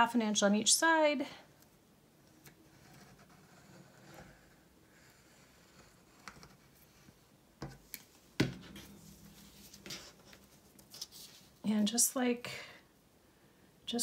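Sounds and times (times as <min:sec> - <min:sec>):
faint paper rustle: 0:08.8 - 0:11.7.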